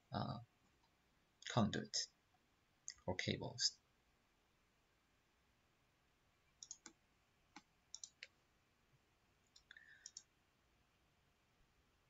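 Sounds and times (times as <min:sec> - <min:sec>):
faint computer mouse clicks: 0:06.6 - 0:08.4, 0:09.5 - 0:10.3.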